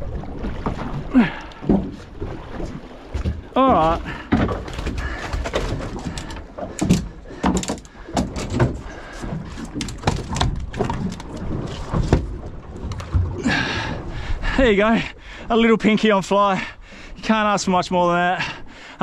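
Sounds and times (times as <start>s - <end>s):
low wind rumble: 0.0s - 18.0s
fishing gear knocking in boat: 3.2s - 13.4s.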